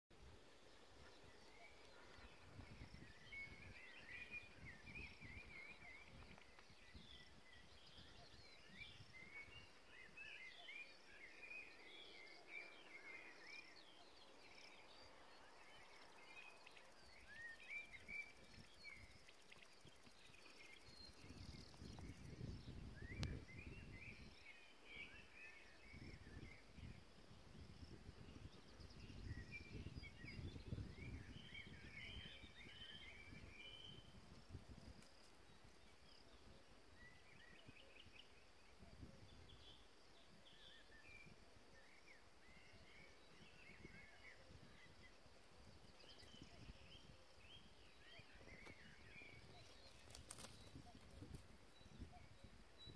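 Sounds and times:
faint birds chirping: 0.1 - 52.9
wind rumbling on microphone: 0.2 - 11.2, 11.8 - 52.9.

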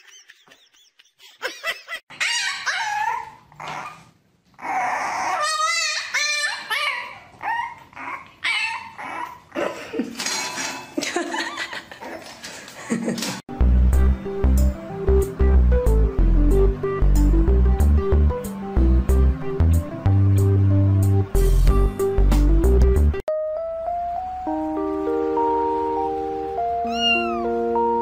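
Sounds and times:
dog giving high cries: 2.1 - 9.6, 26.8 - 27.5.

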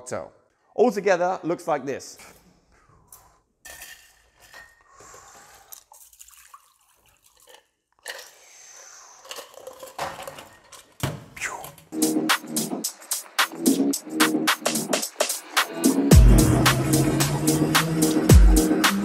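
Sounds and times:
liquid trickling into a glass: 5.8 - 8.5.

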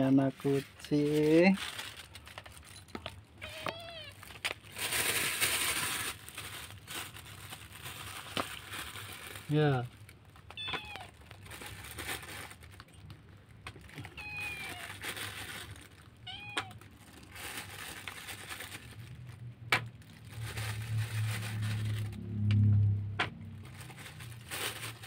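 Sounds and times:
crackling and rustling of eating: 0.0 - 25.0
kittens meowing: 3.4 - 4.2, 10.5 - 11.2, 14.0 - 15.0, 16.2 - 16.8
low drone: 20.6 - 23.6.

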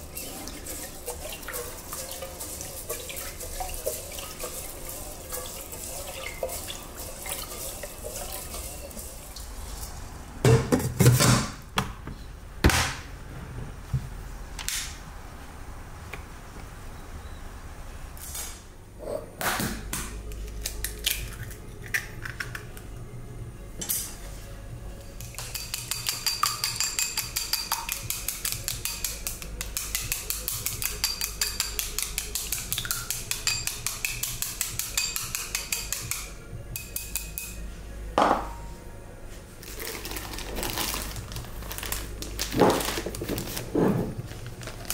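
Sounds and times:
chopsticks beating egg in bowl: 0.0 - 9.1, 25.2 - 37.5.

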